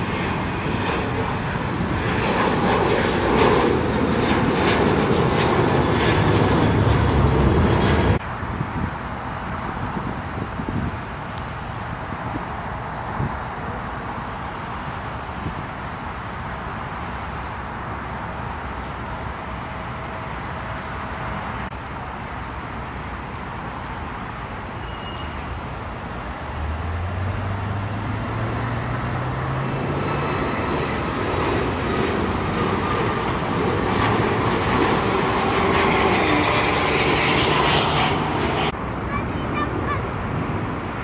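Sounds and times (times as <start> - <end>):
low engine hum rising in pitch: 0.0 - 8.2, 24.7 - 38.8
jet airliner taking off: 0.0 - 8.3, 12.1 - 41.0.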